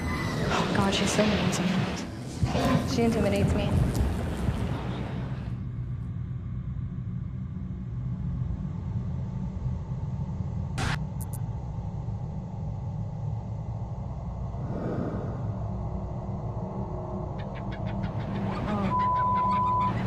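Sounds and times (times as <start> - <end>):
low rumble: 0.0 - 18.8.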